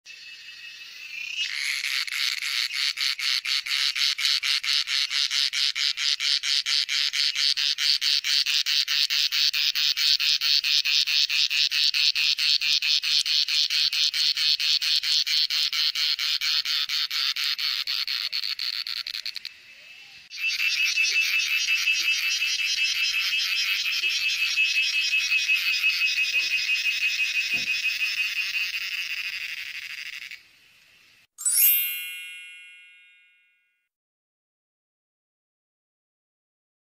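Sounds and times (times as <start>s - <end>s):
cicada buzzing: 0.1s - 19.5s, 20.3s - 30.4s.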